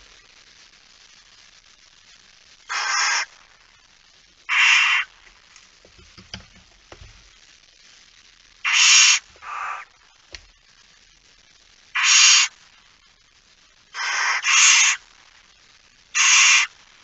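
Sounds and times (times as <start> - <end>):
owl hissing screeches: 2.7 - 3.3, 4.5 - 5.1, 8.6 - 9.9, 12.0 - 12.6, 14.0 - 15.0, 16.1 - 16.8.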